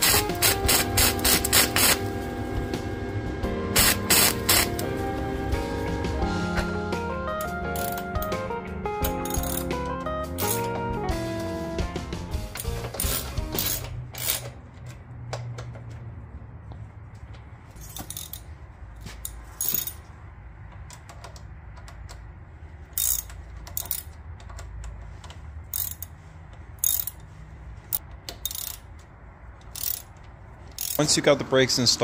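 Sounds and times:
socket ratchet clicking: 0:00.0 - 0:02.0, 0:03.8 - 0:04.9, 0:07.4 - 0:08.4, 0:09.0 - 0:10.7, 0:17.9 - 0:18.5, 0:19.2 - 0:20.0, 0:22.9 - 0:27.3, 0:27.9 - 0:31.0.

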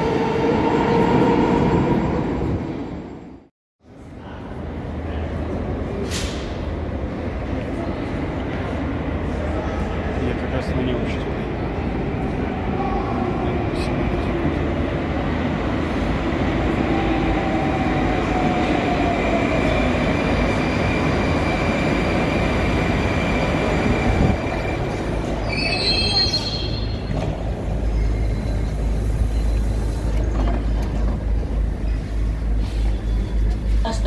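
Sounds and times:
metro train braking with whine: 0:11.2 - 0:34.0.

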